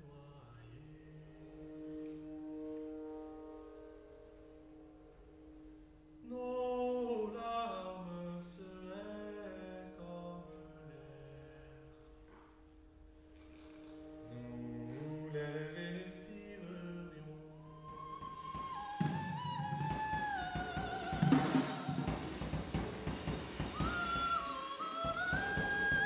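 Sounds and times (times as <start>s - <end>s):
slow singing in long notes: 13.6s - 26.0s.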